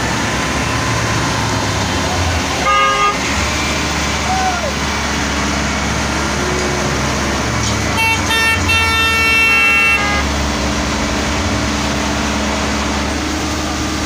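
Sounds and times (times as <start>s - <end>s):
vehicle engine running: 0.0s - 14.0s
vehicle horn honking: 2.6s - 3.4s, 7.8s - 10.3s.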